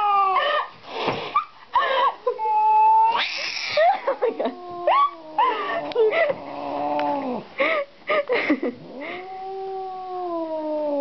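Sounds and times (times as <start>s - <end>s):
cat growling yowls: 0.0s - 0.5s, 2.4s - 7.4s, 8.8s - 11.0s
cat hissing: 3.1s - 3.8s.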